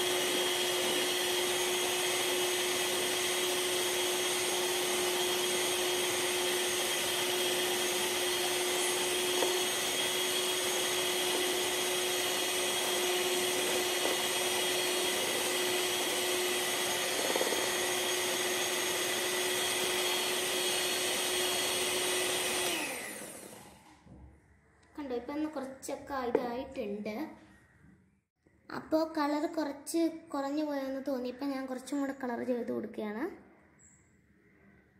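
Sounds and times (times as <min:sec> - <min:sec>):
electric hand beater whirring: 0:00.0 - 0:23.8.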